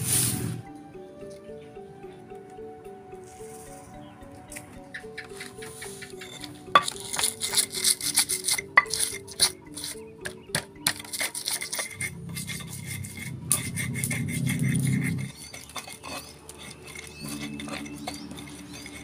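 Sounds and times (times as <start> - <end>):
stone pestle grinding in mortar: 5.2 - 19.0.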